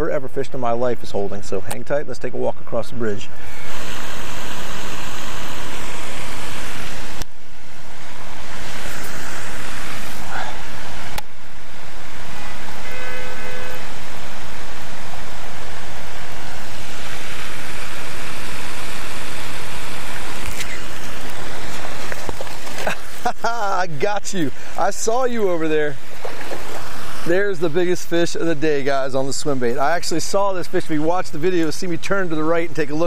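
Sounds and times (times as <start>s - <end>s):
brief pitched tone: 12.4s - 14.0s.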